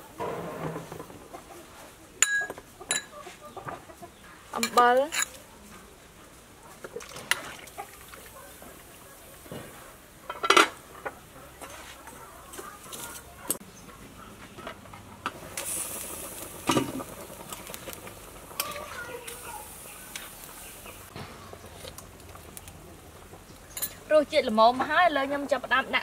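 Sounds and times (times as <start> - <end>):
simmering pot hiss: 4.4 - 13.0, 15.2 - 26.0
metal pot and lid clanks: 10.3 - 11.1.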